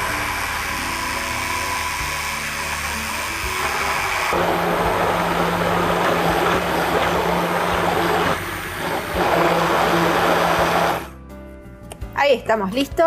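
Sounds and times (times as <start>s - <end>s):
immersion blender motor humming: 0.0s - 11.1s.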